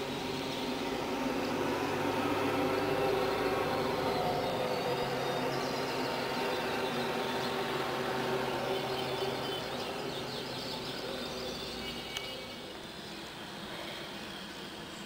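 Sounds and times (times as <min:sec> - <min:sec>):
traffic engine hum: 0:00.0 - 0:15.0.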